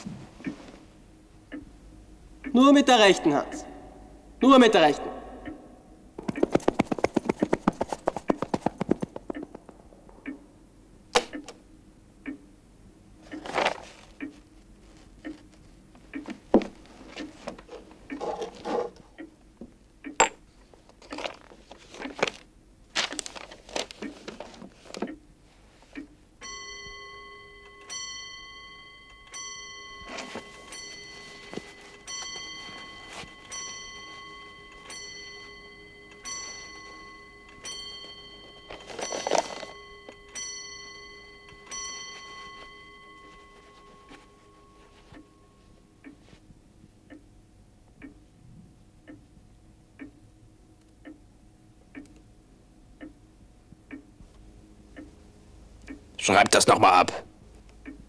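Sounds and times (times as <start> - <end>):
clock ticking: 1.4 - 10.5, 11.2 - 11.6, 12.2 - 12.6, 13.2 - 13.5, 14.2 - 14.5, 15.1 - 18.2, 19.1 - 20.2, 24.9 - 25.3, 25.9 - 52.2, 52.9 - 54.2, 55.8 - 58.0
sharp knocks and clicks: 6.2 - 10.4
steady ringing tone: 26.4 - 46.4.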